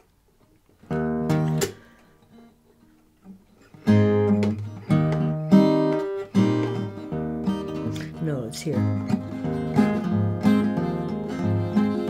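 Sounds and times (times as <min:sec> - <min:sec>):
acoustic guitar strummed chords: 0:00.9 - 0:12.0.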